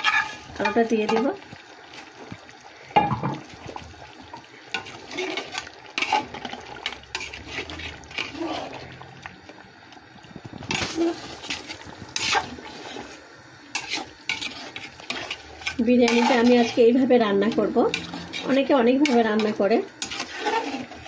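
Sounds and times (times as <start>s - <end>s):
spoon scraping metal pot: 0.0s - 1.2s, 4.7s - 8.9s, 10.6s - 21.0s.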